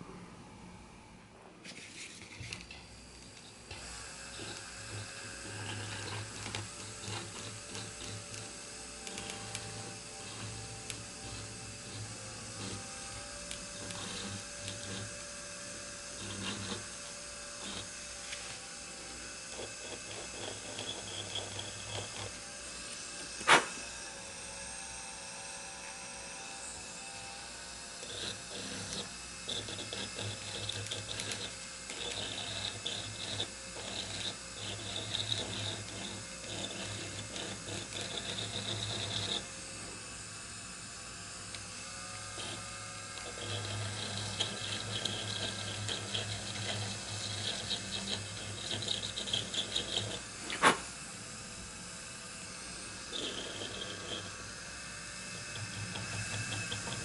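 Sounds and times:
rotary tool chattering on wood: 0:03.4 - 0:18.0, 0:19.4 - 0:22.4, 0:28.0 - 0:39.5, 0:42.4 - 0:50.9, 0:53.0 - 0:54.4, 0:55.4 - 0:57.0.

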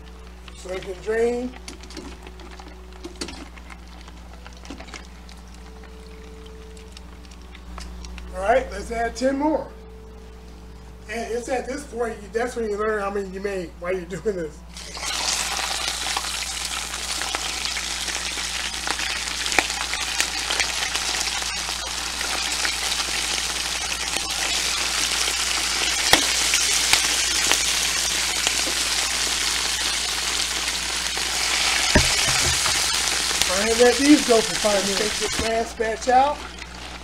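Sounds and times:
oil sizzling and bubbling: 0:00.0 - 0:08.2, 0:14.7 - 0:37.0.

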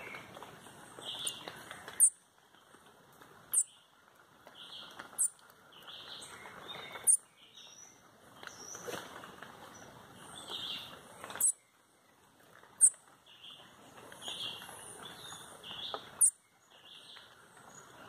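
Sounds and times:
soft bird chirps: 0:00.0 - 0:02.8, 0:03.5 - 0:18.0.

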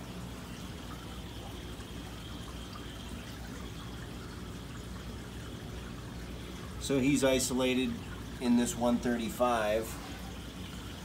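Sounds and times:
aquarium water trickling: 0:00.0 - 0:11.0.

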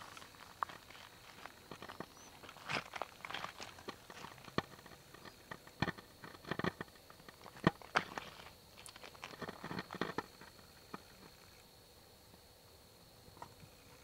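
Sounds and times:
footsteps crunching on gravel: 0:00.0 - 0:10.5
stones clicking underfoot: 0:00.0 - 0:11.4.

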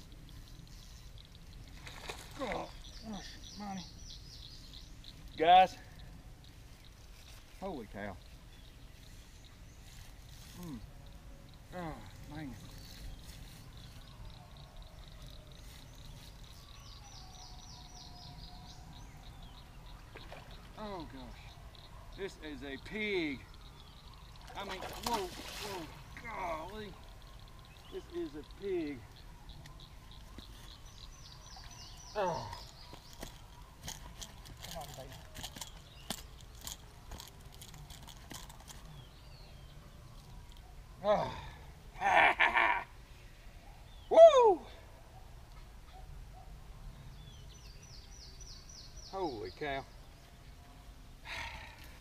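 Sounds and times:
insects pulsing: 0:00.0 - 0:39.1
bird singing falling notes: 0:12.4 - 0:40.6
clicks and rustles: 0:32.5 - 0:39.0.

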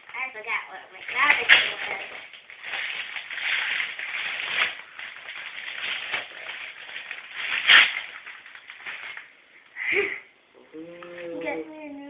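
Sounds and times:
wrapping paper crinkling and tearing: 0:00.0 - 0:09.4.

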